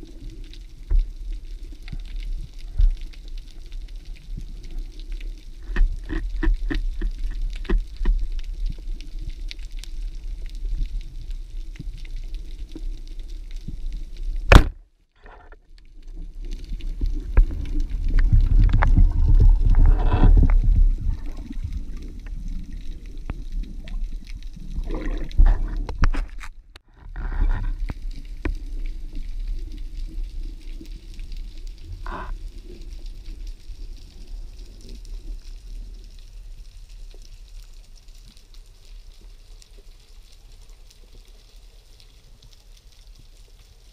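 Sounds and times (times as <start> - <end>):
underwater water rushing: 16.0 - 26.5
low rumble: 16.8 - 26.7.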